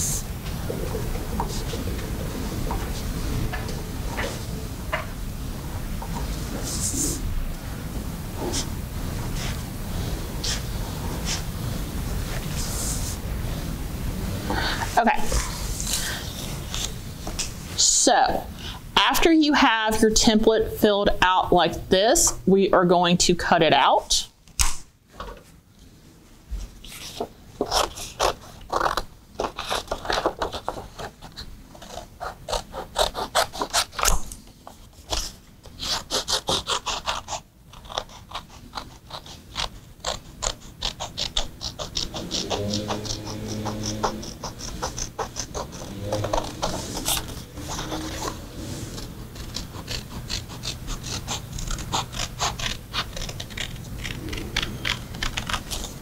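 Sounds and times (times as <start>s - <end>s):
scissors snipping paper: 26.9s - 34.4s, 35.0s - 56.0s.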